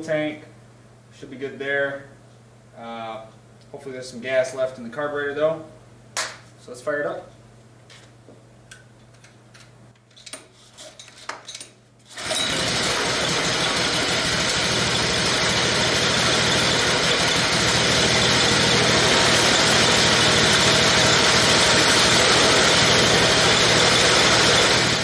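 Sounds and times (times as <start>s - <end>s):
small engine running: 12.2s - 25.0s.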